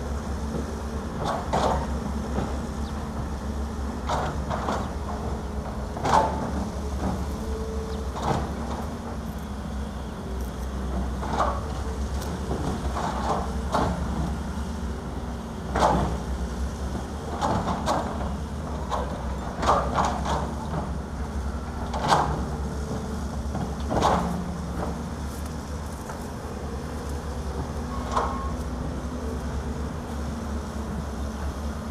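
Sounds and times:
diesel engines running: 0.0s - 31.9s.

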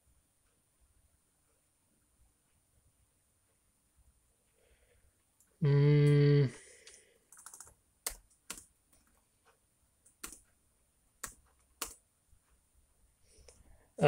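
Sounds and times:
laptop keystrokes: 7.3s - 9.2s, 10.0s - 10.5s, 11.2s - 12.1s.

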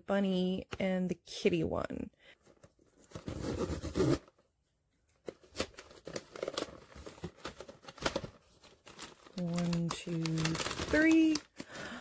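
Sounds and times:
paper contents rustling: 5.2s - 12.0s.

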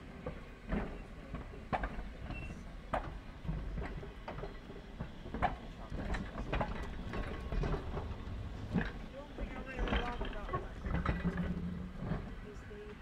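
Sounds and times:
tram rumbling on track: 0.0s - 13.0s
clanks and knocks: 0.2s - 12.5s.

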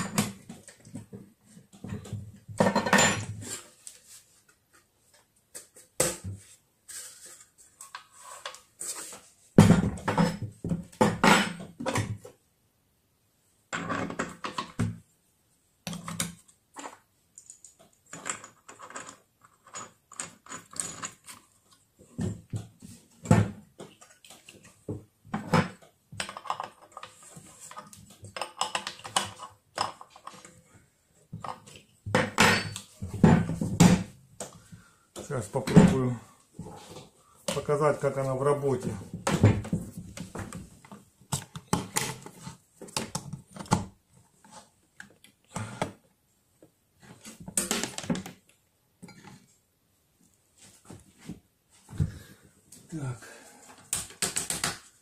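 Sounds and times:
metal objects clattering on a table: 1.8s - 3.6s, 9.6s - 12.2s, 15.9s - 21.4s, 31.4s - 34.1s.

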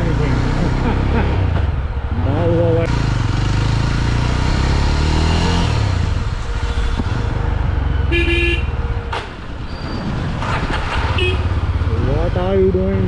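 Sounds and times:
vehicle horn toot: 8.0s - 8.8s, 11.0s - 11.5s.

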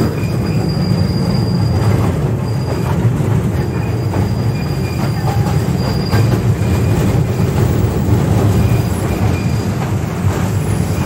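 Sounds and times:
faint high squeal: 0.2s - 2.8s.

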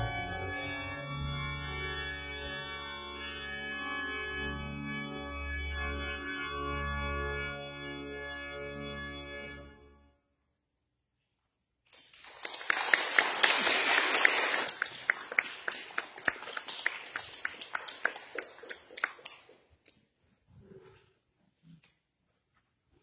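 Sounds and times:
people applauding: 12.0s - 19.6s.

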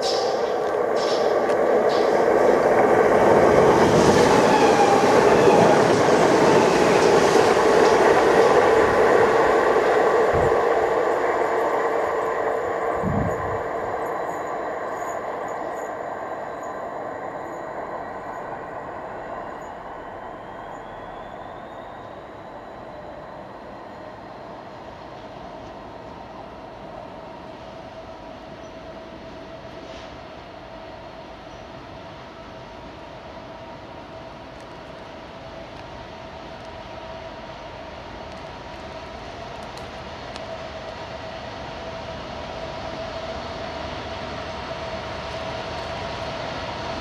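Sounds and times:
train rolling on rails: 0.0s - 47.0s.

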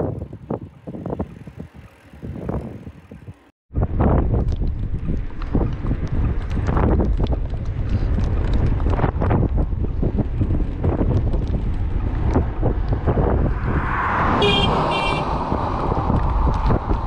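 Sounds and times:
wind rumble on microphone: 0.0s - 17.0s
car tyre noise: 0.5s - 17.0s
car horn toots: 14.3s - 15.3s.

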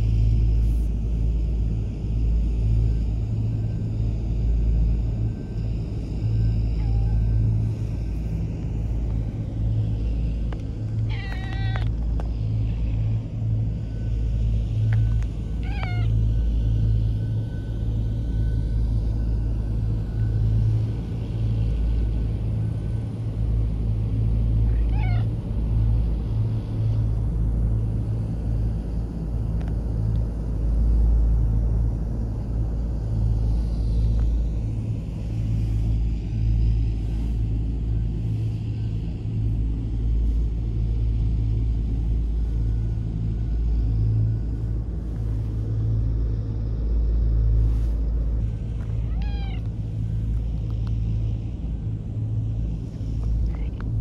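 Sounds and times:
steady low rumble: 0.0s - 54.0s
cat meowing: 11.1s - 11.9s, 15.6s - 16.1s, 24.7s - 25.3s, 48.9s - 49.7s.

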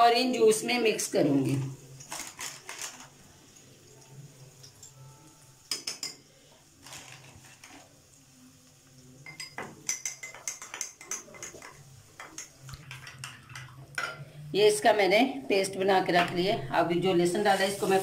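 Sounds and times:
metal spoon clinking on glass: 5.7s - 6.2s, 9.2s - 14.2s.

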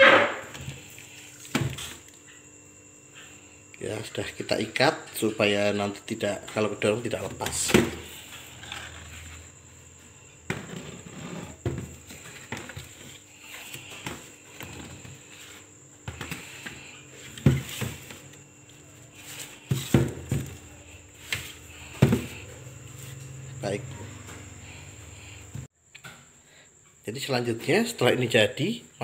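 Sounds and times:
plastic crate knocking and clattering: 11.6s - 13.0s, 17.4s - 18.2s, 19.7s - 20.6s, 21.9s - 22.4s.

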